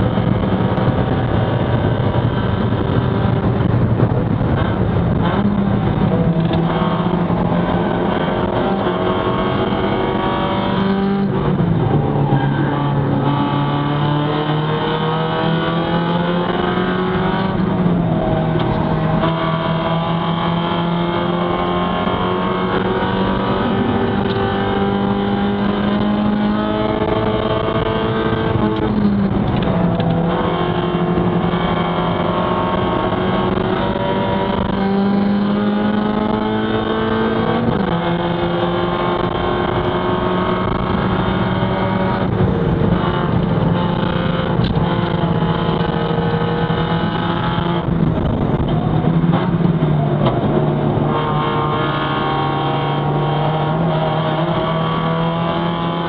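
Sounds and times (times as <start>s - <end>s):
race car engine at full throttle: 0.0s - 56.0s.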